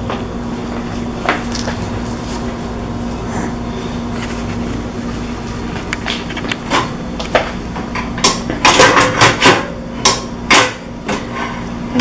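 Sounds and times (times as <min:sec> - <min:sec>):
metal baking pans clanking: 0:08.1 - 0:11.7.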